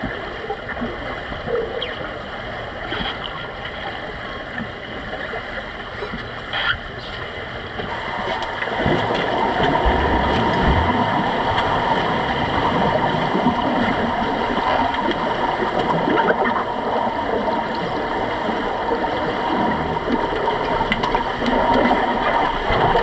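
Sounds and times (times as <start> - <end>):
steady hum: 0.0 - 23.0
underwater rushing and bubbling: 0.0 - 23.0.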